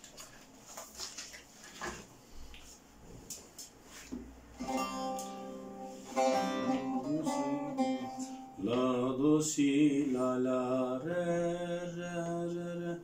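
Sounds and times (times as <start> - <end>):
plucked lute folk melody: 4.6 - 8.8.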